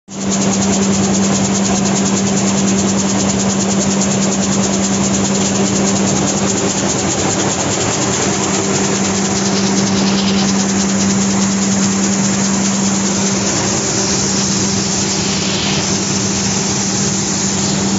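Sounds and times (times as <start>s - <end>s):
beans rattling and hissing: 0.2s - 17.9s
machine humming: 0.2s - 17.9s.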